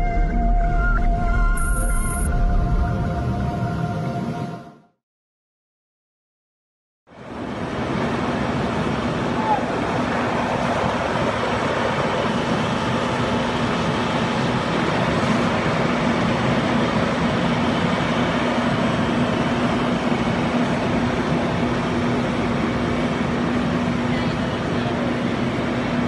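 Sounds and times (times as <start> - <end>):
fire engine pump engine humming: 7.1 - 26.0.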